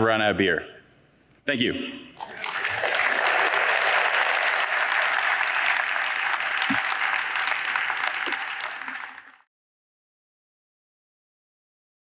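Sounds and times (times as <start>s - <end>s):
audience applauding: 2.2s - 9.5s.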